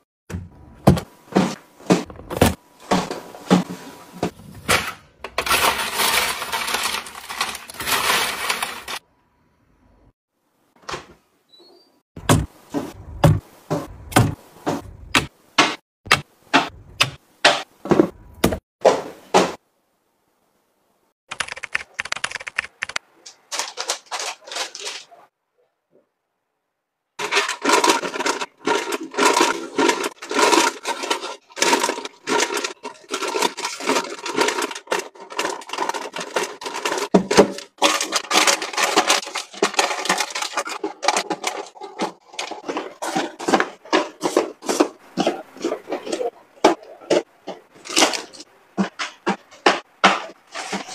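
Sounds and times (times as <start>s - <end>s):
plastic snack bags crinkling: 5.4s - 9.0s, 22.1s - 25.2s, 27.2s - 46.3s, 47.8s - 48.4s
plastic cups tapping down: 27.2s - 50.9s.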